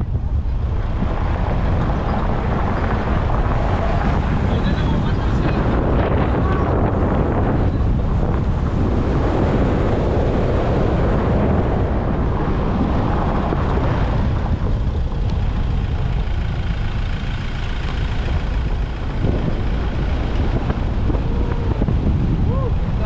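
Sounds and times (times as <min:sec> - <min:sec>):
car road and engine noise: 0:00.0 - 0:23.0
wind rushing over microphone: 0:00.0 - 0:23.0.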